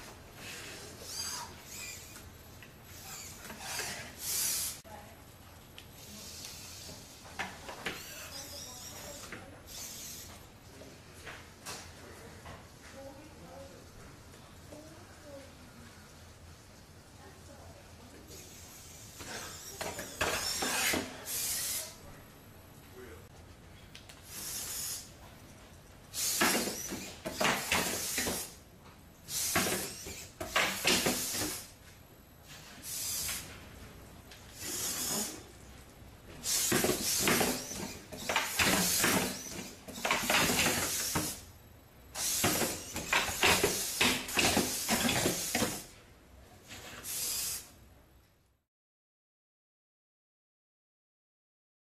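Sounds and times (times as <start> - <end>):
servo motors whirring: 0.4 - 2.3, 2.9 - 4.8, 6.0 - 7.2, 7.8 - 10.4, 18.3 - 22.0, 24.3 - 25.1, 26.2 - 28.6, 29.3 - 31.7, 32.8 - 33.5, 34.5 - 35.5, 36.4 - 41.4, 42.2 - 45.9, 47.0 - 47.7.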